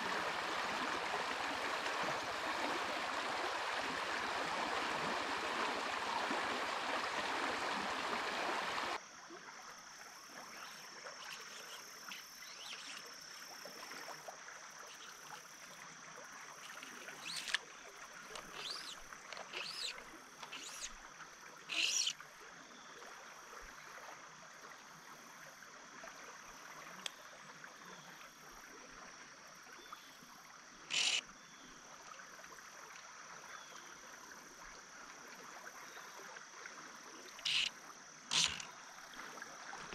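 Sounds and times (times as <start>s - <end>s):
stream water rushing: 0.0s - 9.0s, 16.6s - 22.2s, 30.9s - 31.2s, 37.4s - 39.9s
insect buzz: 7.7s - 22.9s, 30.5s - 31.6s, 37.0s - 39.9s.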